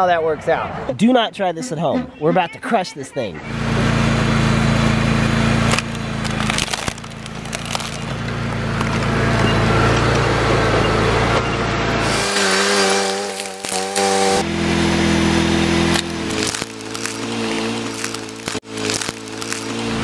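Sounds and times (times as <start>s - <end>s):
track loader engine running: 3.4s - 20.0s
plastic toy cracking and crunching: 5.6s - 9.4s, 12.7s - 14.3s, 15.8s - 20.0s.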